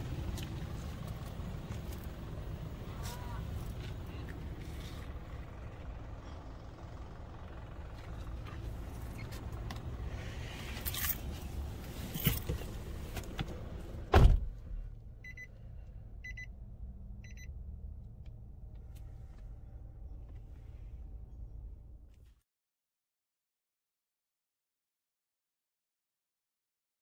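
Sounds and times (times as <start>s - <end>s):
outside rumble: 0.0s - 22.4s
car door shutting: 12.1s - 14.8s
dashboard warning chime beeps: 15.2s - 15.5s, 16.2s - 16.5s, 17.2s - 17.5s.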